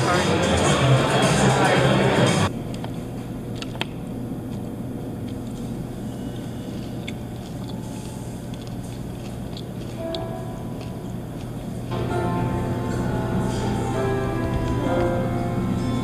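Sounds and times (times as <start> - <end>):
steady low hum: 0.0 - 16.0
faint chewing: 4.5 - 12.0.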